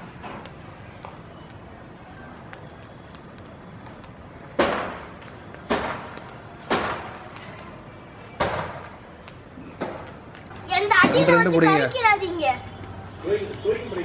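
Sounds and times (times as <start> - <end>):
wood fire crackling: 0.0 - 14.0.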